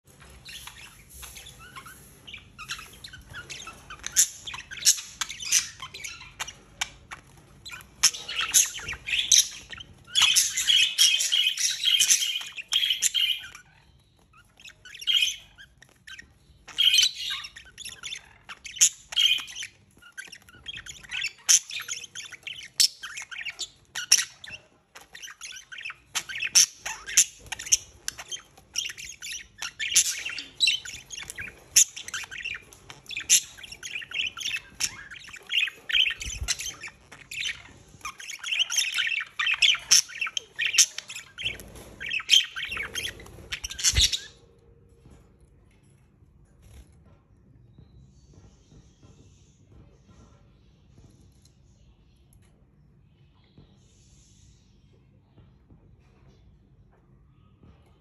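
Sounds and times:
budgerigars chirping and squawking: 0.1 - 45.2.

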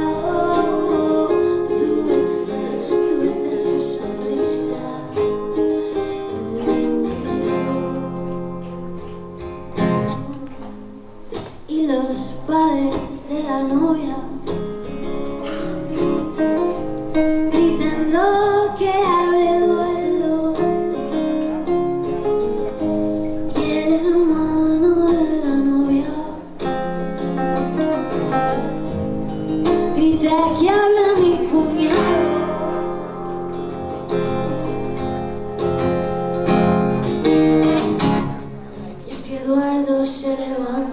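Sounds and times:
woman singing: 0.0 - 8.9, 11.7 - 14.6, 17.5 - 21.0, 23.5 - 26.6, 29.8 - 33.2, 39.0 - 40.9
acoustic guitars plucked: 0.0 - 40.9.

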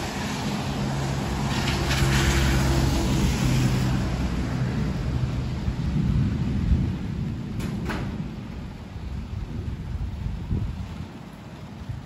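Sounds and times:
heavy rain: 0.0 - 12.0.

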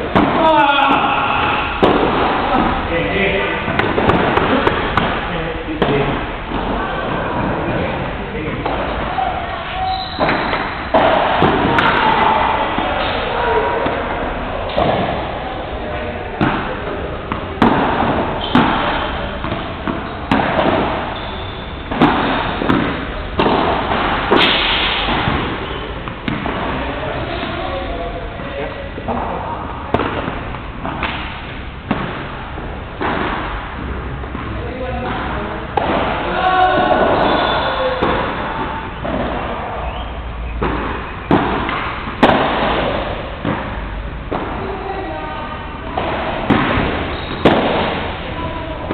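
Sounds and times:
ball struck by rackets: 0.0 - 0.5, 1.4 - 2.8, 3.6 - 7.5, 10.1 - 15.4, 16.4 - 27.6, 29.0 - 44.6, 46.0 - 48.9
ball rebounding off walls: 9.9 - 27.6.

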